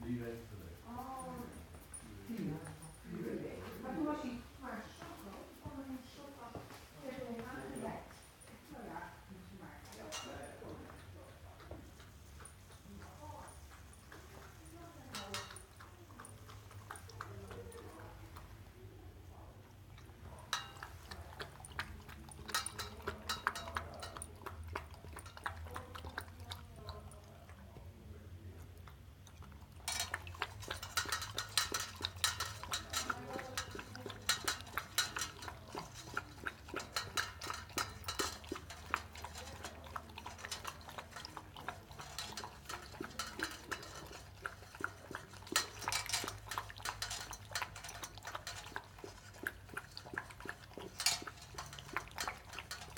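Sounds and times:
puppy lapping water from metal bowl: 0:09.8 - 0:52.9.

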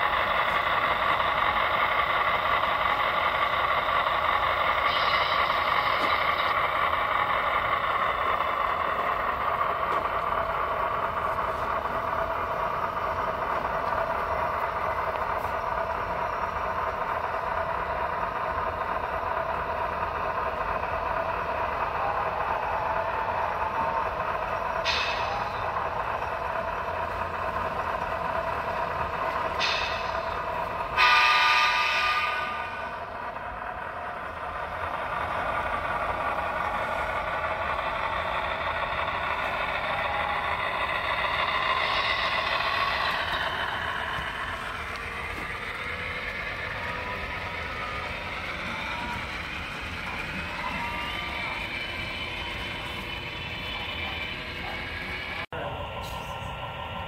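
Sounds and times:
steady running hum: 0:00.0 - 0:57.0
model locomotive horn: 0:30.8 - 0:33.2.

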